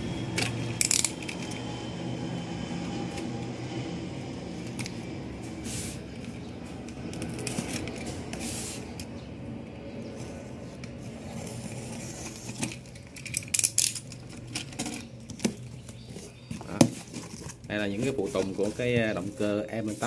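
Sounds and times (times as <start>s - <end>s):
low background hum: 0.0s - 20.0s
tape and cardboard crackling: 4.6s - 9.1s, 10.2s - 20.0s.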